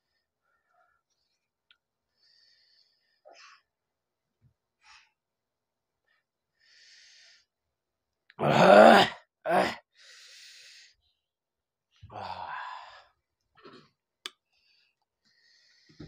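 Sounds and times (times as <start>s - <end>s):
man breathing: 2.1s - 3.7s, 6.5s - 7.6s, 10.0s - 11.2s, 14.4s - 16.0s.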